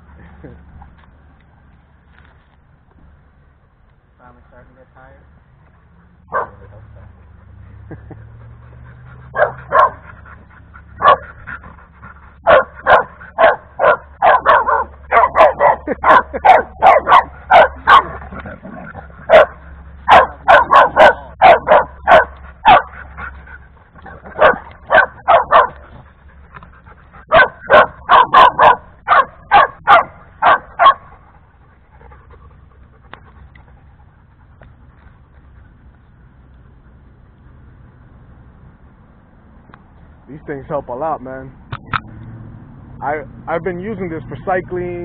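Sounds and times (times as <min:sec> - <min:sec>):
dog barking sharply: 0:06.3 - 0:06.7, 0:09.4 - 0:10.0, 0:11.0 - 0:11.3, 0:12.4 - 0:18.2, 0:19.3 - 0:23.0, 0:24.4 - 0:25.8, 0:27.3 - 0:31.1.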